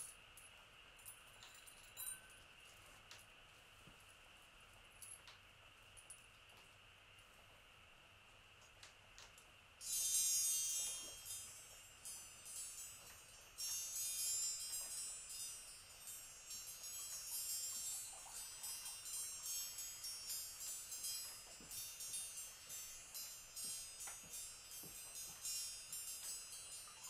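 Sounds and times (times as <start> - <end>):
small high-pitched chimes: 1.0 - 2.8, 9.8 - 27.0.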